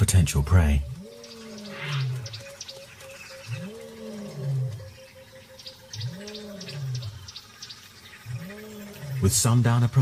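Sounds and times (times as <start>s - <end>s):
faint bird chirps: 0.0s - 10.0s
lion roaring: 3.5s - 5.0s.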